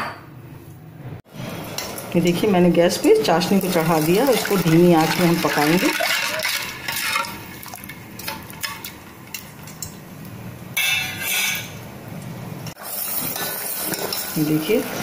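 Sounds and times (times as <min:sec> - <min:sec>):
ladle clinking and scraping pot: 0:04.2 - 0:10.0, 0:13.0 - 0:14.4.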